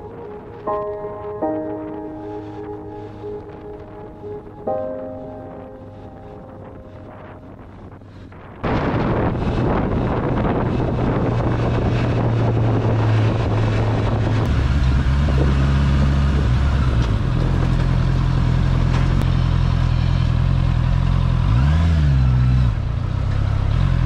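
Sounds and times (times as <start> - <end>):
wind rush on microphone: 5.9 - 17.8
motorcycle engine running: 7.4 - 24.0.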